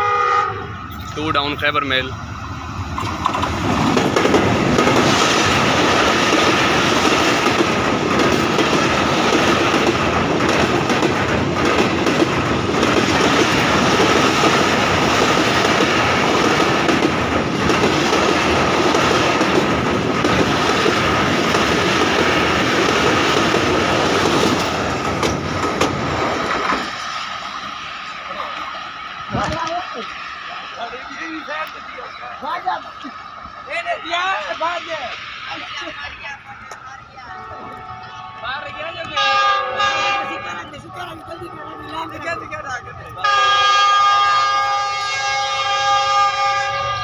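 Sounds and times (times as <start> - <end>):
train wheels clattering over rail joints: 3.0 - 27.0.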